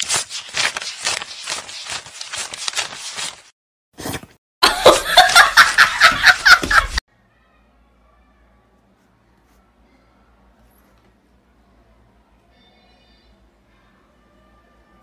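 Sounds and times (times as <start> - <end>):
person laughing: 4.6 - 7.0.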